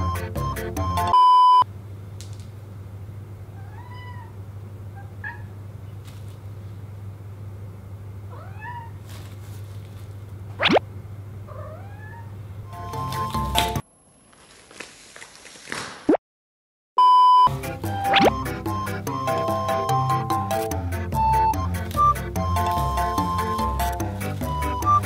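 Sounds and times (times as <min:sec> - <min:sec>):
loud steady beep: 0:01.1 - 0:01.6, 0:17.0 - 0:17.5
steady low hum: 0:01.6 - 0:14.2
cats meowing: 0:03.5 - 0:04.4, 0:08.3 - 0:09.1, 0:11.5 - 0:12.4.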